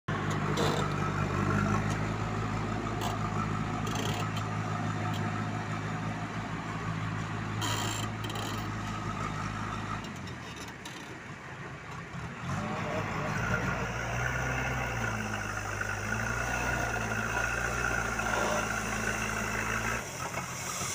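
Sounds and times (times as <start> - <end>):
diesel engine running: 0.1 - 20.9.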